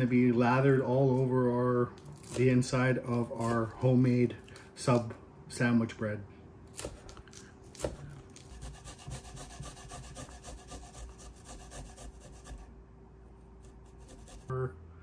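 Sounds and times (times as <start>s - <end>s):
garlic rasped on a grater: 7.7s - 12.7s, 13.6s - 14.5s.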